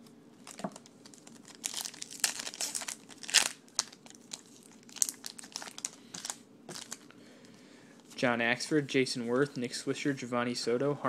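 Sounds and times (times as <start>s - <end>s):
card pack wrapper crinkling: 0.4s - 7.1s.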